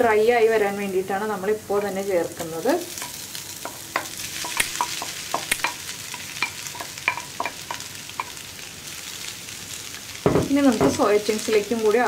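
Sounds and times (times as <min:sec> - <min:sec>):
light sizzle in frying pan: 0:00.0 - 0:12.0
spatula knocking on bowl and pan: 0:03.0 - 0:08.4, 0:10.2 - 0:11.0.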